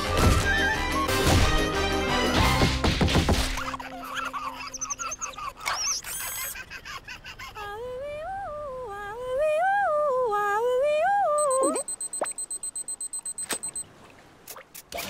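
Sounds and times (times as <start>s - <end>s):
woman humming: 7.6s - 11.9s.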